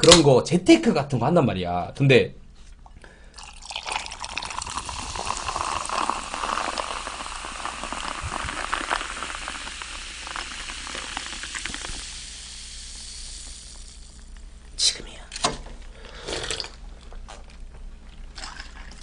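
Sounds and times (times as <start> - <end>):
carbonated drink pouring: 3.3 - 14.4, 16.2 - 16.8, 18.3 - 19.0
bubbles fizzing: 3.4 - 14.4, 18.3 - 19.0.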